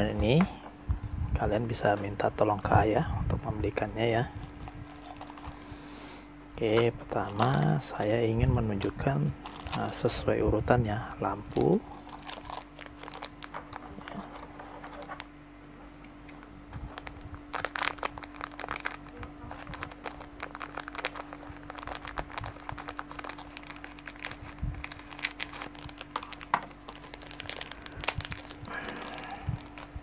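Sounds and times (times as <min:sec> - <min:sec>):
plastic bag crinkling: 0:04.4 - 0:05.7, 0:06.9 - 0:08.1, 0:08.8 - 0:10.3, 0:11.4 - 0:15.3, 0:16.4 - 0:30.0.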